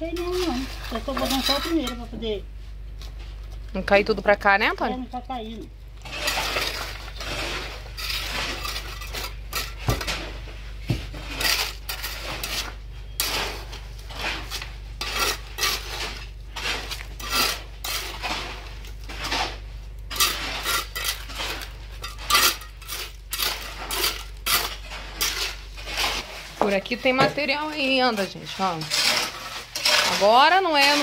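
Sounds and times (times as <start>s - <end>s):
trowel scraping wet concrete: 0.2s - 2.2s, 5.4s - 10.4s, 11.0s - 31.0s.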